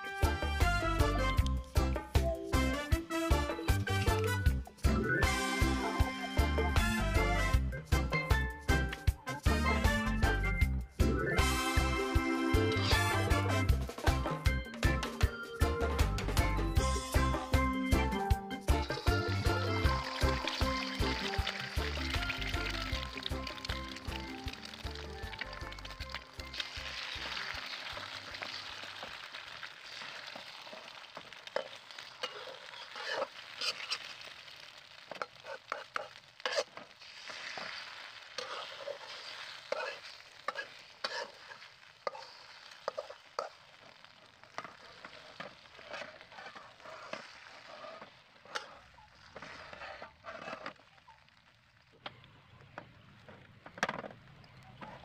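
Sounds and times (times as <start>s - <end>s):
egg sizzling in oil: 11.4s - 15.4s, 16.8s - 53.3s
metal spatula scraping pan: 18.7s - 23.7s, 26.1s - 34.4s, 35.0s - 50.8s.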